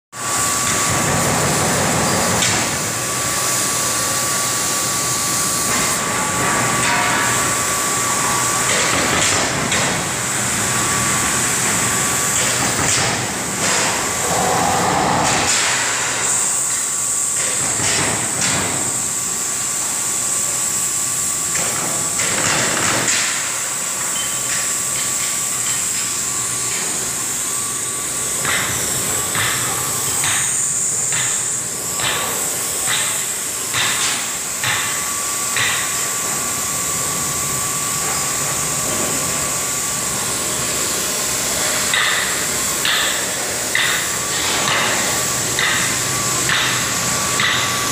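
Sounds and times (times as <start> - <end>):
high machine whine: 0.2 - 47.9.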